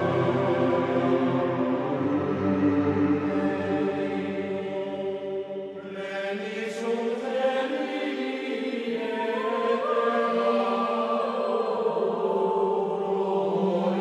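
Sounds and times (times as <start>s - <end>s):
choir holding sustained chords: 0.0s - 14.0s.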